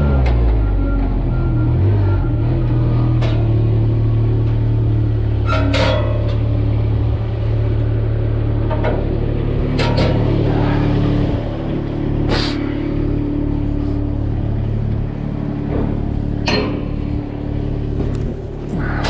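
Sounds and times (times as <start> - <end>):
large engine running: 0.0 - 19.0
sharp metallic clanks: 5.4 - 6.6, 8.6 - 10.6, 15.6 - 17.3.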